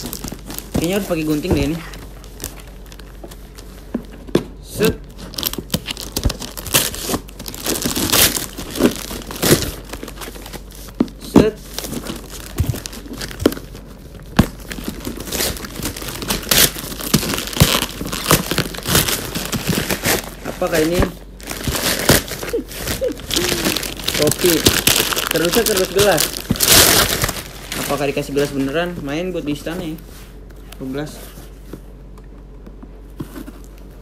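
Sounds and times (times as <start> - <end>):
wrapping paper crinkling and tearing: 0.0 - 3.8, 5.2 - 11.0, 11.6 - 29.9.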